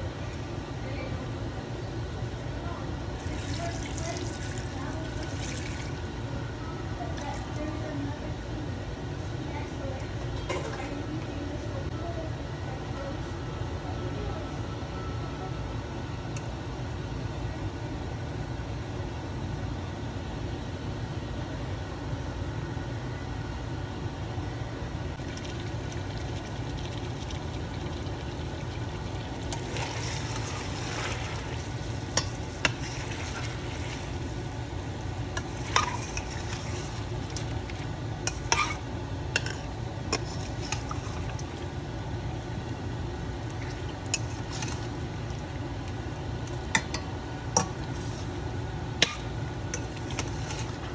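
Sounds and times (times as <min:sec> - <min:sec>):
steady low hum: 0:00.0 - 0:50.9
metal spoon scraping a pot: 0:38.3 - 0:38.8.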